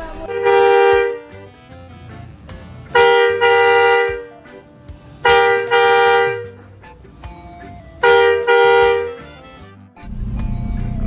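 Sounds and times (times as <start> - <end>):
truck horn blasts: 0.0 - 4.6, 5.2 - 6.7, 7.9 - 9.8.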